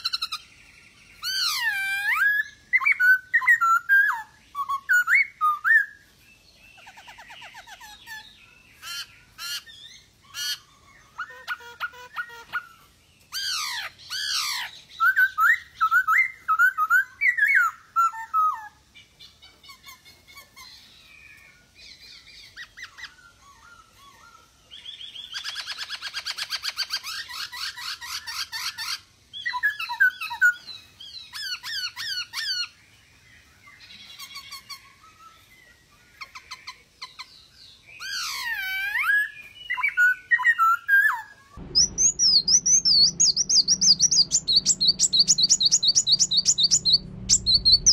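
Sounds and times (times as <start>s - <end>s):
bird singing whistled phrases: 1.2s - 6.0s, 13.4s - 18.8s, 37.9s - 47.9s.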